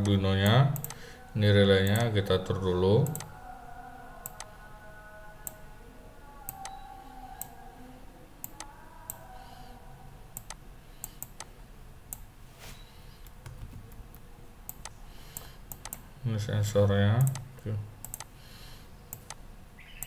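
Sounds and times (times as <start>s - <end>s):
computer mouse clicking: 0.8s - 1.0s, 3.0s - 3.3s, 4.2s - 4.5s, 8.4s - 9.2s, 10.4s - 11.5s, 13.2s - 16.0s, 17.2s - 18.3s, 19.1s - 19.4s.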